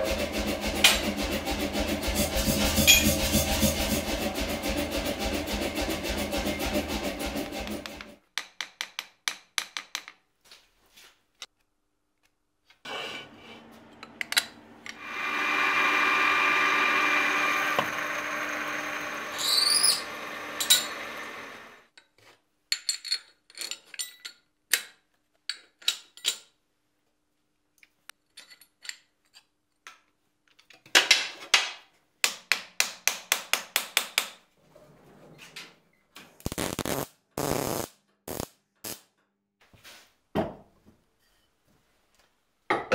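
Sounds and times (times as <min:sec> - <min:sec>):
power tool whining: 0:14.9 - 0:21.8
welding crackle: 0:36.4 - 0:39.0.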